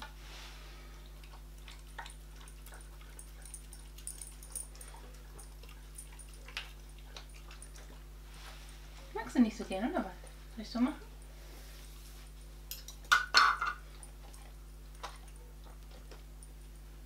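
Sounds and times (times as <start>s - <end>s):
faint steady hum: 0.0s - 17.0s
dog licking and chewing food: 1.0s - 9.2s, 13.8s - 17.0s.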